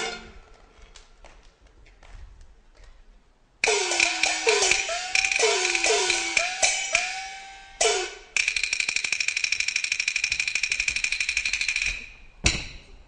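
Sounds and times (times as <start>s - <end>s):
cymbal crashes: 3.6s - 8.4s
gong strokes with bending pitch: 3.6s - 8.4s.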